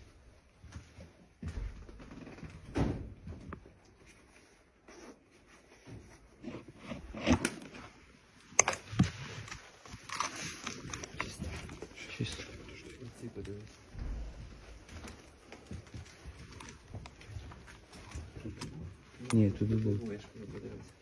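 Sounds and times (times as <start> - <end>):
footsteps: 0.0 - 7.3, 10.9 - 19.6
rustling: 3.7 - 21.0
knocks and thuds: 13.9 - 15.0.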